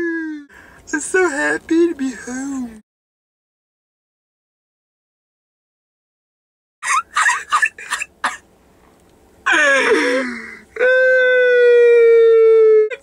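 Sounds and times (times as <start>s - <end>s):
boy crying and wailing: 0.0s - 0.5s, 9.5s - 13.0s.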